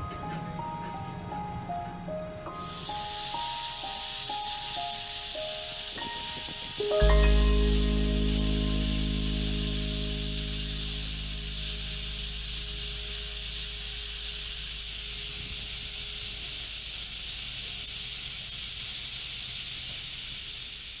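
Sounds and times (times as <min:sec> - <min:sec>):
music: 0:00.0 - 0:14.4
steam locomotive venting steam: 0:02.6 - 0:21.0.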